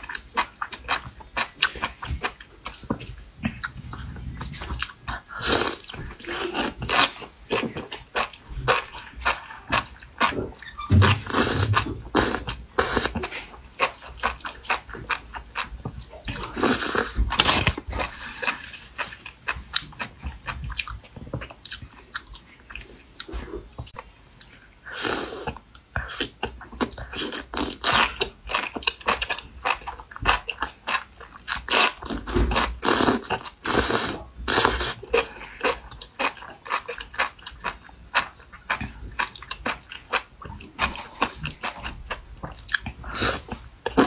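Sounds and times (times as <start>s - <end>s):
slurping broth: 32.0s - 35.0s.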